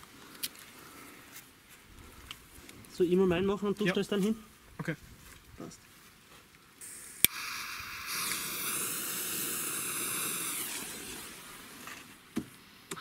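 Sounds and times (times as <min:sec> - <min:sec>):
firecracker fuse hissing: 0:06.8 - 0:12.3.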